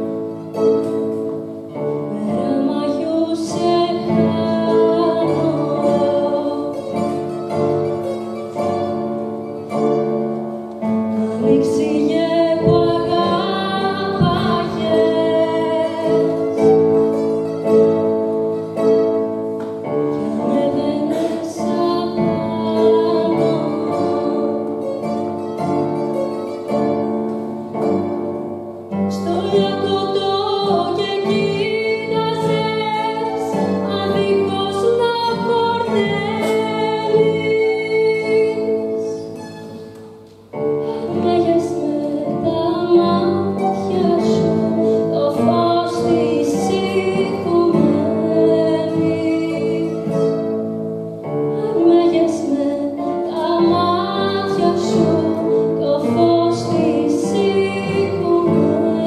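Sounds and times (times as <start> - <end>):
piano bouzouki and guitars: 0.0 - 59.0
woman singing into a microphone: 2.0 - 7.1, 11.0 - 16.8, 20.1 - 25.0, 29.1 - 39.4, 40.8 - 50.6, 51.3 - 59.0.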